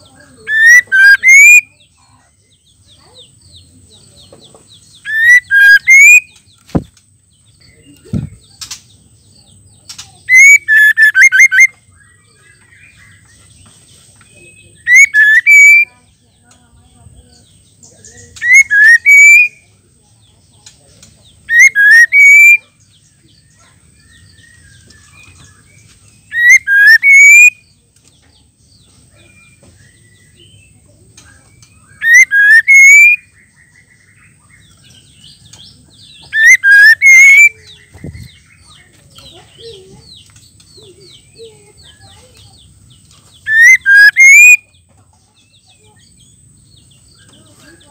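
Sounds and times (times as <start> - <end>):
bird whistled calls: 0.4 - 1.9, 4.9 - 6.8, 10.3 - 11.8, 14.5 - 15.9, 18.4 - 19.6, 21.5 - 22.7, 24.1 - 27.7, 31.5 - 34.8, 36.0 - 39.7, 43.3 - 44.8.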